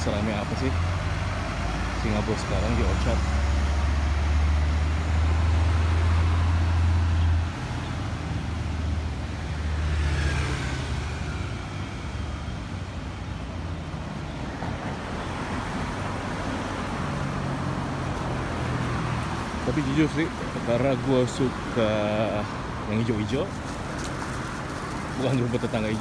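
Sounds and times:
motorbike passing: 0.0 - 13.8
steady traffic hum: 0.0 - 26.0.

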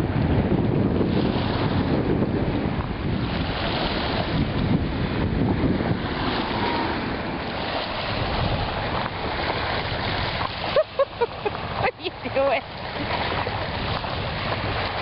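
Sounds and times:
wind buffeting microphone: 0.0 - 15.0
waves washing onto pebbles: 3.0 - 15.0.

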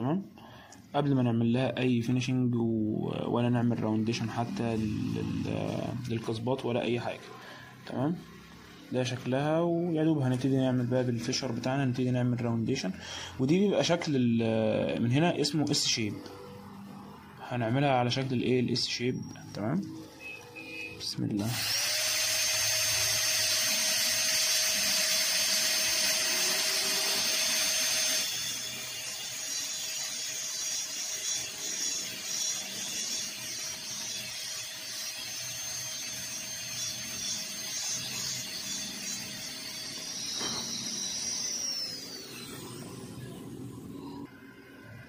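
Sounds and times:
dental drill whining: 3.9 - 6.1, 18.1 - 44.7.

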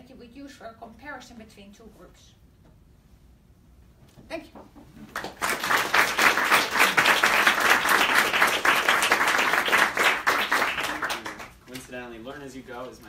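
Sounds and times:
audience applauding: 5.0 - 11.6.

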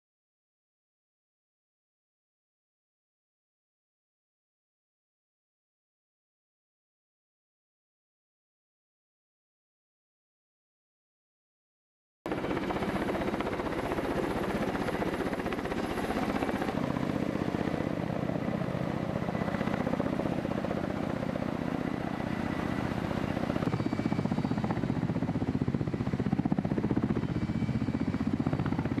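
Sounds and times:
helicopter rotor chop: 12.3 - 29.0.

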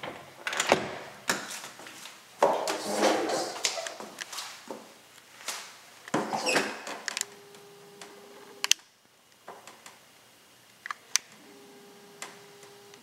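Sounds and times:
faint steady hum: 0.0 - 13.0
footsteps on a hard floor: 1.3 - 6.4.

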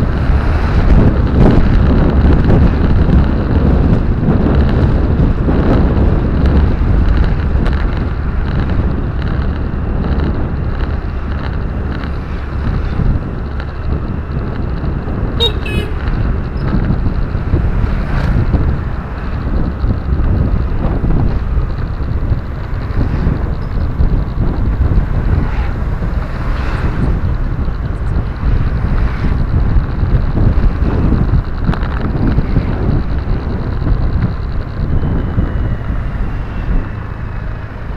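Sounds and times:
road and wind noise in car: 0.0 - 37.9
car horn toot: 15.4 - 16.2.

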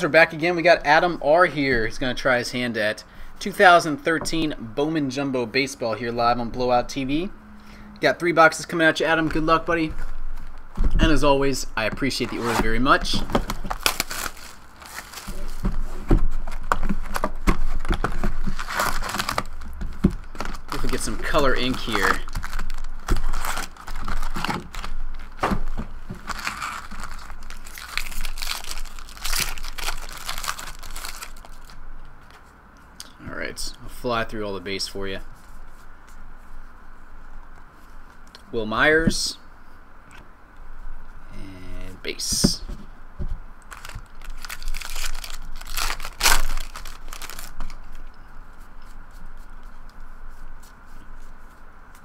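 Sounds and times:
foil wrapper crinkling and tearing: 12.0 - 25.4, 26.1 - 31.8, 43.6 - 48.1.

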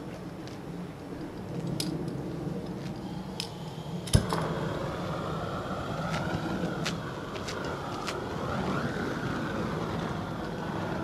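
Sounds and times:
burner roaring: 0.8 - 11.0
torch flame pop: 4.0 - 4.9.

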